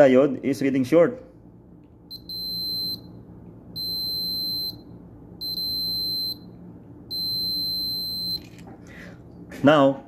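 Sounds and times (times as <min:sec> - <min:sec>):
multimeter high beeps: 0:02.1 - 0:03.2, 0:03.8 - 0:06.5, 0:07.1 - 0:08.5.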